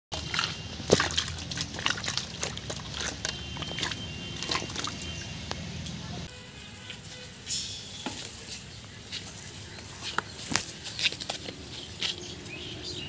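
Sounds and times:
water splashing in metal bucket: 0.1 - 5.4.

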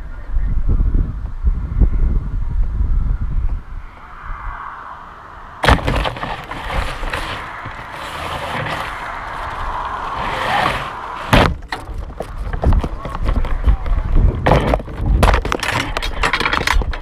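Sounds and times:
leaves and twigs rustling: 5.2 - 16.3.

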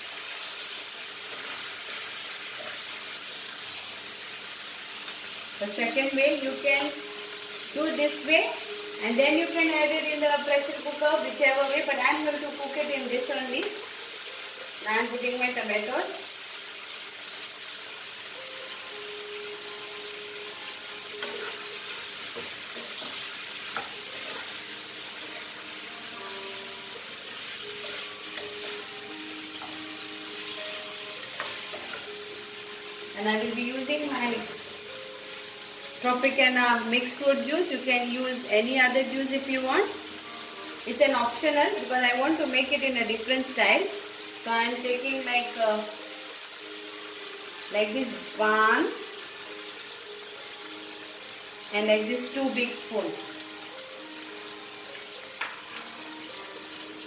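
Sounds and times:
meat and onions sizzling: 0.0 - 57.0
spatula stirring: 21.2 - 24.7, 27.2 - 28.9.

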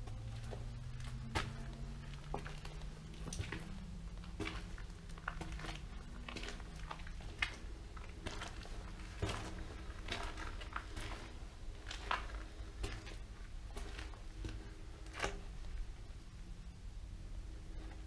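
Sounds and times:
crunching footsteps on wet floor: 0.0 - 15.8
steady low hum: 0.0 - 18.0.

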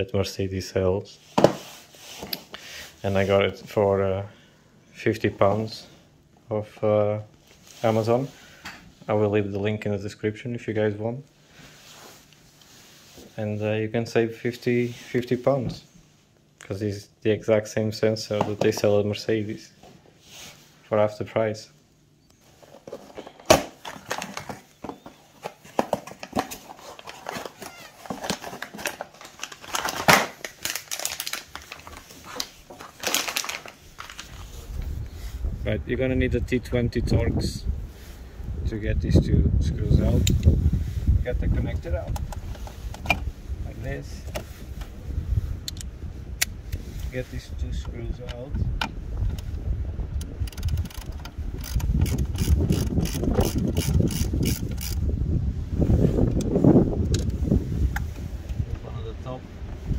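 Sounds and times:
plastic bag crinkling: 23.2 - 34.6
hand ratchet clicking: 50.5 - 55.0.

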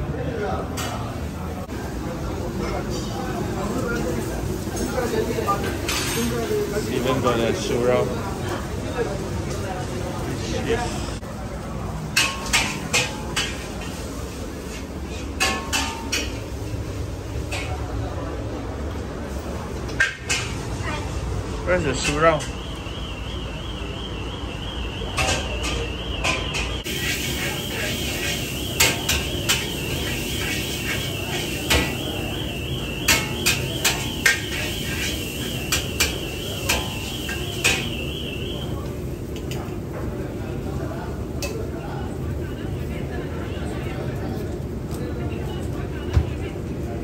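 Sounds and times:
kitchen din: 2.5 - 7.8, 11.8 - 18.2, 19.8 - 23.8, 24.6 - 40.2
metal spatula clanking on wok: 12.1 - 14.0, 15.2 - 16.6, 33.0 - 37.9
crockery and cutlery clinking: 15.1 - 16.5.

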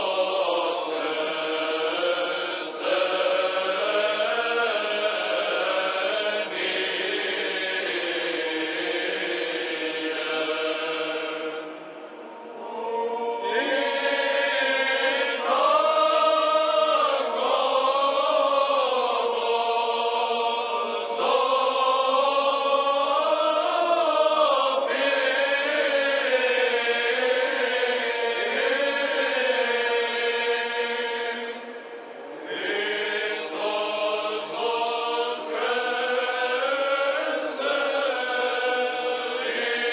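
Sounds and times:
choir singing chant: 0.0 - 39.9.

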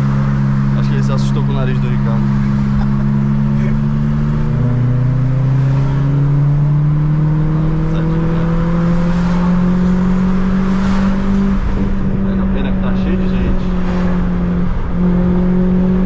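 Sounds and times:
car engine accelerating: 0.0 - 16.0.

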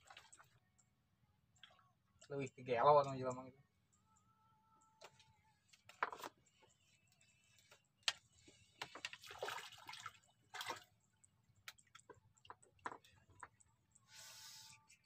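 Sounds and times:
fish splashing in water: 9.0 - 10.9.

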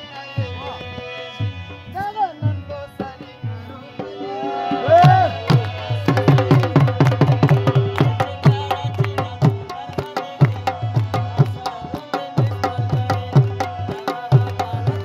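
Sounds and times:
hand drums fast rhythm: 4.7 - 15.0.

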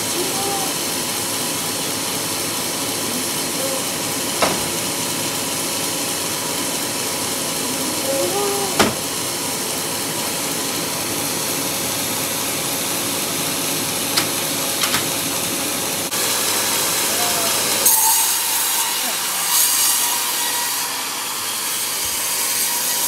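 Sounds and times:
person shouting: 0.0 - 0.9, 3.1 - 4.0, 7.7 - 9.0, 17.1 - 17.9
bandsaw machinery hissing: 0.0 - 23.0
sharp knocks: 4.4 - 5.0, 8.8 - 9.1.

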